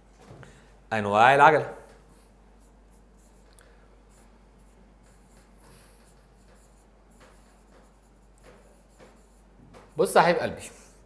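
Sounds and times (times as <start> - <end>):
stylus tapping and scratching screen: 1.8 - 10.4.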